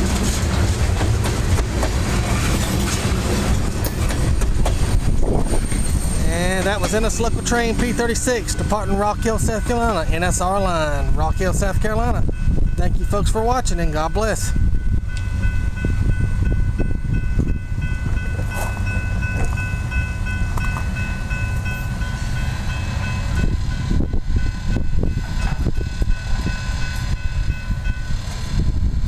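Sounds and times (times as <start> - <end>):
heavy low rumble: 0.0 - 29.0
railroad crossing bell ringing: 5.5 - 28.5.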